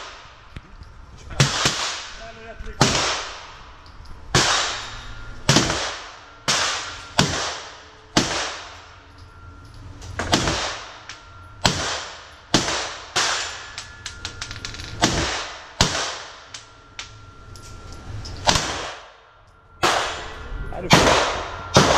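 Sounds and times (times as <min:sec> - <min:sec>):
pistol shots indoors: 0:04.3 - 0:09.2, 0:10.2 - 0:11.0, 0:11.6 - 0:13.8, 0:15.0 - 0:16.6, 0:18.4 - 0:19.2, 0:19.8 - 0:21.9.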